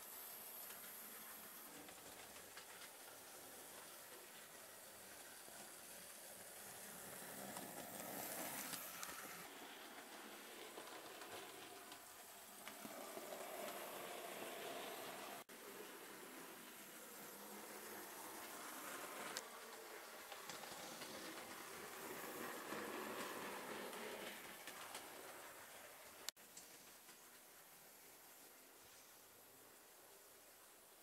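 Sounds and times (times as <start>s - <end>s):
model train running on track: 0.0s - 26.3s.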